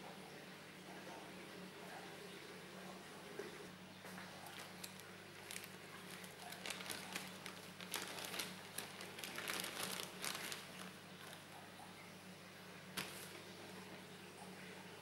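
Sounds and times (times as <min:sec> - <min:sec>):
plastic bag crinkling: 0:04.4 - 0:11.6, 0:13.0 - 0:13.5.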